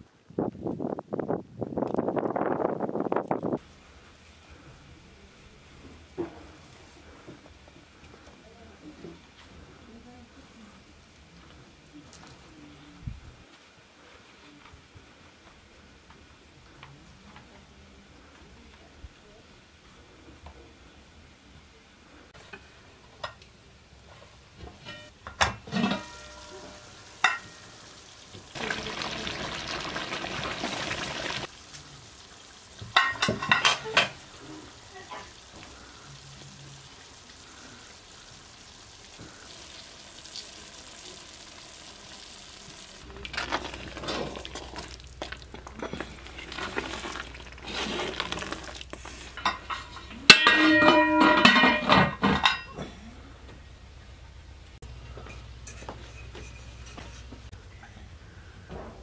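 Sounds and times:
metal lid clattering on pot: 0:24.8 - 0:26.5, 0:33.0 - 0:34.2, 0:49.4 - 0:52.8
metal utensils clinking: 0:24.8 - 0:27.8, 0:32.9 - 0:34.2, 0:49.3 - 0:52.9
steady hissing: 0:30.0 - 0:49.5.

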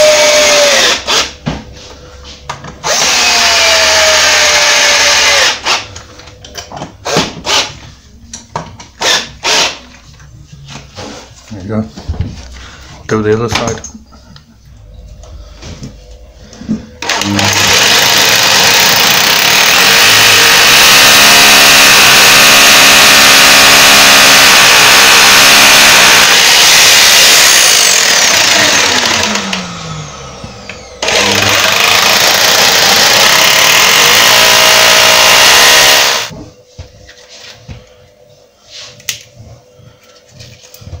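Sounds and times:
vacuum extractor: 0:16.6 - 0:36.3
hammer drill boring into brick: 0:17.0 - 0:29.8, 0:31.0 - 0:36.3.

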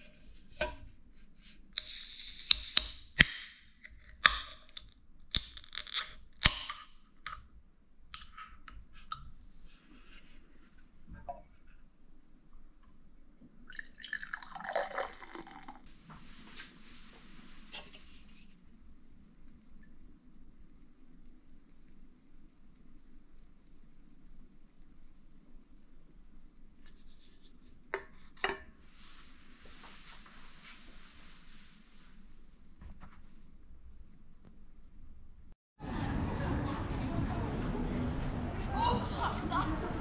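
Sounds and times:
gas hissing from can: 0:01.8 - 0:03.3
can ring-pull cracking open: 0:01.8 - 0:06.9
beer pouring and fizzing: 0:13.5 - 0:15.9.

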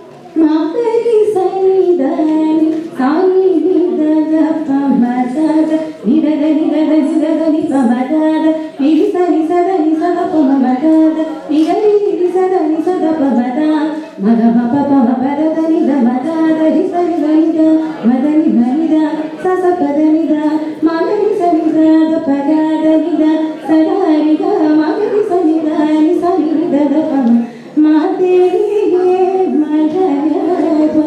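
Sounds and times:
woman singing into microphone: 0:00.4 - 0:31.0.

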